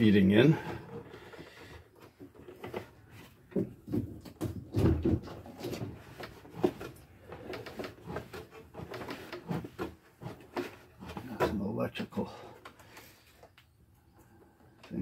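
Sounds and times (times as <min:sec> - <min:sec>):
wooden console being handled: 0:00.6 - 0:11.7.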